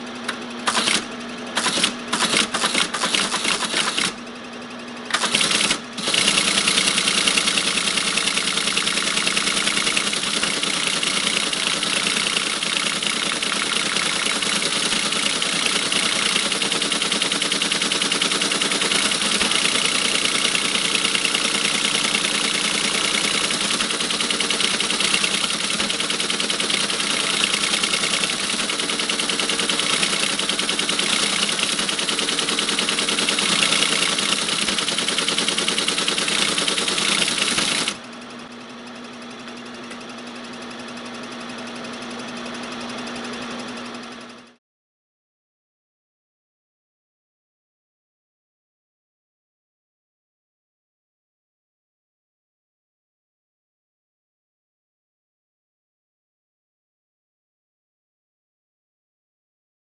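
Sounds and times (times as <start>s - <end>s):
teleprinter clattering: 0.3s - 4.2s, 5.1s - 38.0s.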